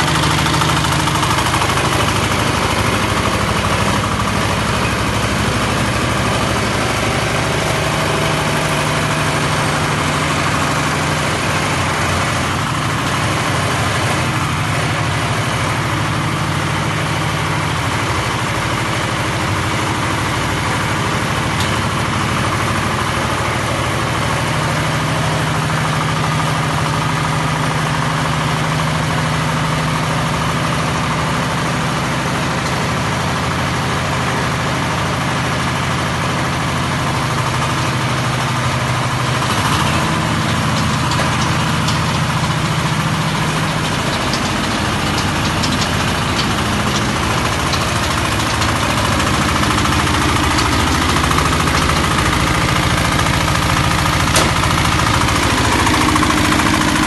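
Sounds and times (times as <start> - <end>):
crawler dumper engine running: 0.0 - 57.0.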